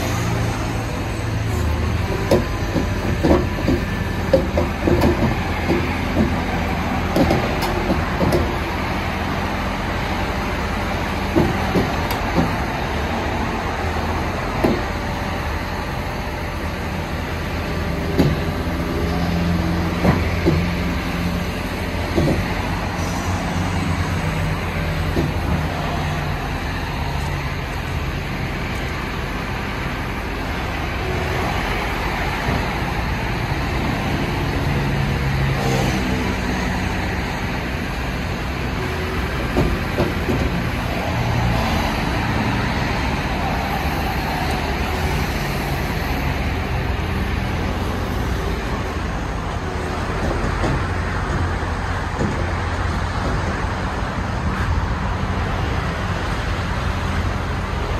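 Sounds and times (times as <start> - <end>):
excavator diesel engine running: 0.0 - 57.9
steel tracks clanking on ramps: 0.0 - 57.9.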